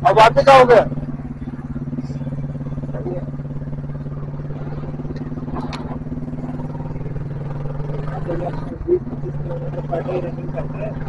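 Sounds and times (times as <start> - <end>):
motorcycle engine cruising: 0.0 - 11.0
wind and road noise: 0.0 - 11.0.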